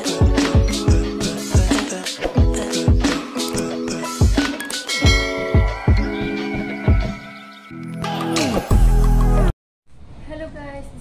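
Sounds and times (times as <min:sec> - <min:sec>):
bass drum beat: 0:00.0 - 0:03.3, 0:04.2 - 0:06.2
held chords: 0:00.0 - 0:09.5.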